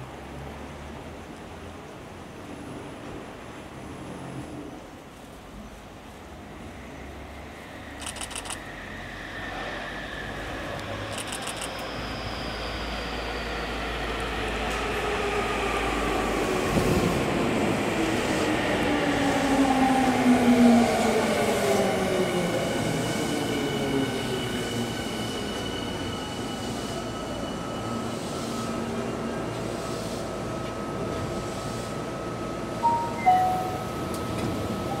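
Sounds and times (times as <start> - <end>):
rail and running noise: 0.0 - 35.0
steady high-pitched tone: 32.7 - 35.0
two-tone chime: 32.8 - 34.2.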